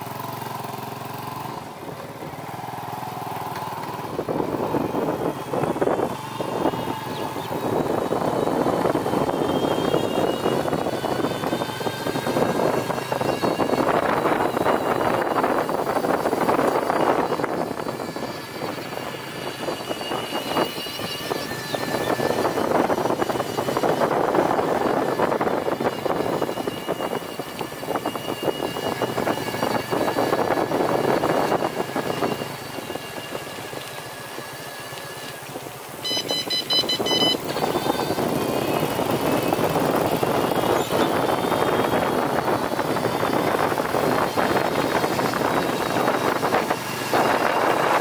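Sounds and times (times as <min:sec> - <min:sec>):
rough road rumble: 0:00.0 - 0:48.0
thin high whine: 0:03.8 - 0:48.0
wind buffeting microphone: 0:04.0 - 0:33.8, 0:36.6 - 0:48.0
high steady tones: 0:35.9 - 0:48.0.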